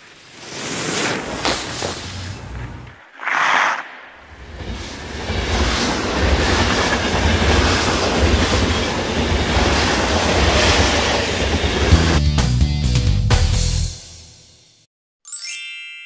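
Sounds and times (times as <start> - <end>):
steady rumbling rushing noise: 3.7 - 12.2.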